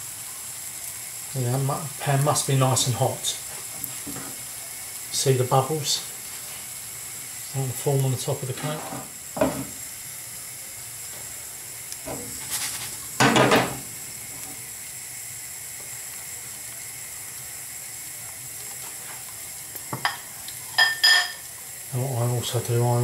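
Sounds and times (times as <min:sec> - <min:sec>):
batter sizzling in oil: 0:00.0 - 0:23.0.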